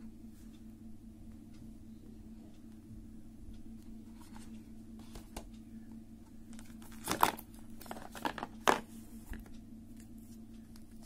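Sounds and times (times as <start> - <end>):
steady low hum: 0.0 - 11.0
cardboard packaging rustling: 6.6 - 9.4.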